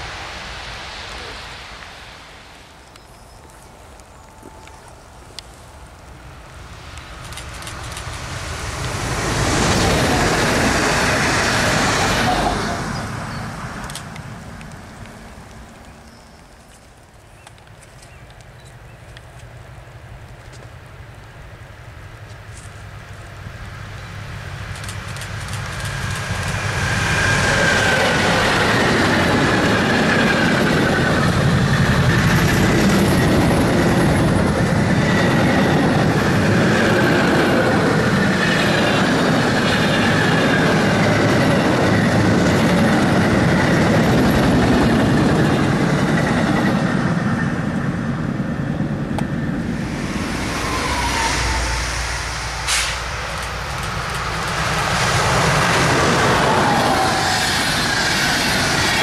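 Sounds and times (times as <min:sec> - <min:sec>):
train passing at speed: 0:00.0 - 0:17.7, 0:18.8 - 0:59.0
train approaching: 0:00.0 - 0:59.0
rail clatter: 0:24.6 - 0:47.9, 0:49.2 - 0:59.0
high whining tones: 0:49.3 - 0:54.3.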